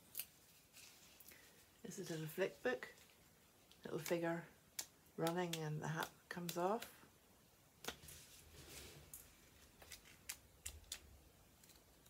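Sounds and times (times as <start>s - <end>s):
paper pages rustling: 7.9s - 11.0s.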